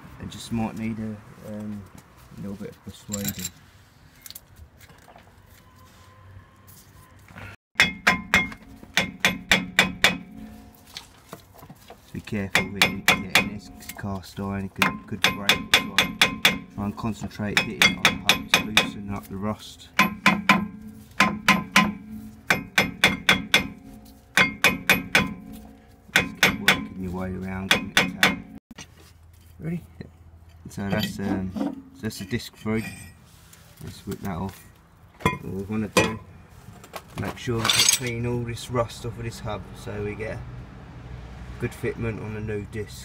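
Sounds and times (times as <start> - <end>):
light handling noise: 2.7 - 3.6
hammer striking metal disc: 7.8 - 10.7, 12.5 - 14.1, 14.8 - 16.8, 17.4 - 19.2, 19.9 - 27.0, 27.7 - 28.6.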